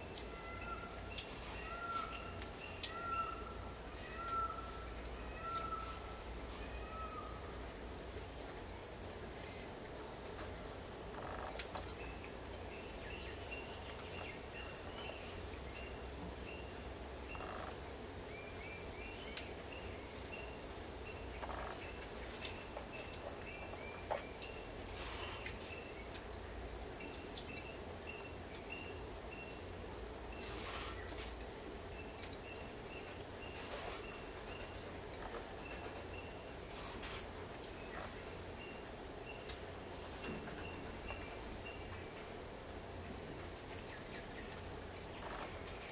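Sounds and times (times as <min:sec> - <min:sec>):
high-pitched insect drone: 0:14.5 - 0:17.9.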